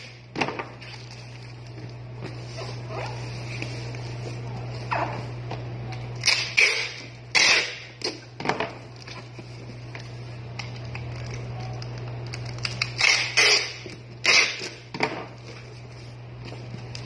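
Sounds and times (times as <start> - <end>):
steady low hum: 0.0 - 17.0
packing tape ripping: 6.2 - 8.3, 10.6 - 14.9.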